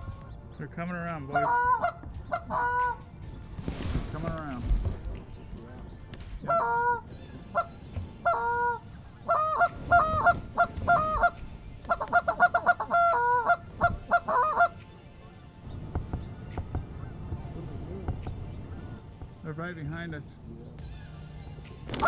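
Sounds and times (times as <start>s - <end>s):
goose honking: 0.0s - 3.1s, 6.4s - 15.5s
goose clucks: 1.3s - 3.1s, 6.4s - 14.9s.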